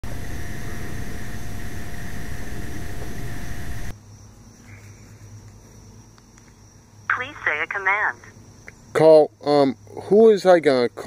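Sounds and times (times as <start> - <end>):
faint steady whine tones: 0.1 - 9.8.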